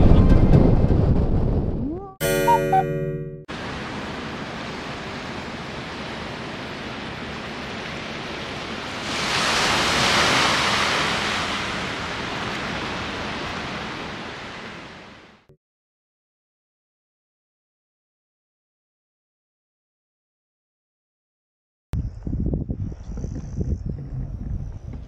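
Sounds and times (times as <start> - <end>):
strong wind on microphone: 22.0 - 25.0.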